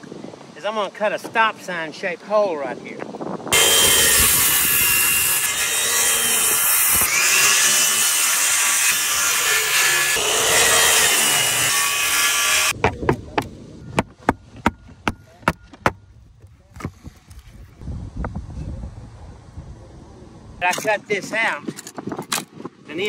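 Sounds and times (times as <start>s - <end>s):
circular saw cutting wood: 3.5s - 12.8s
hatchet knocking on wood: 12.8s - 16.0s.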